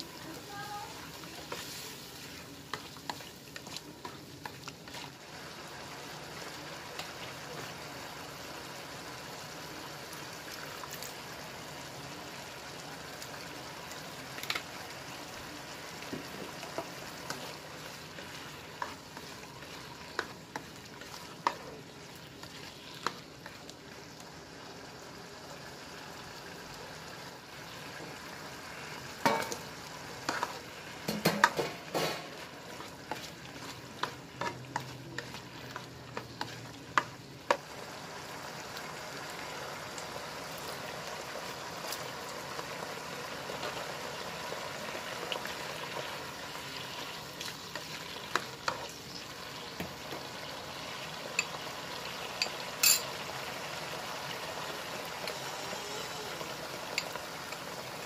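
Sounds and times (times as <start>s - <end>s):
sauce sizzling in a wok: 0.0s - 58.0s
spatula scraping a pan: 30.2s - 37.6s.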